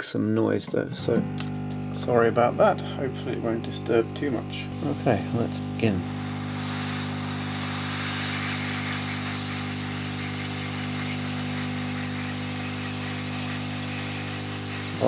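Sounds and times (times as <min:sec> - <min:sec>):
hot air gun motor drone: 0:01.0 - 0:15.0
hiss of air: 0:06.1 - 0:15.0.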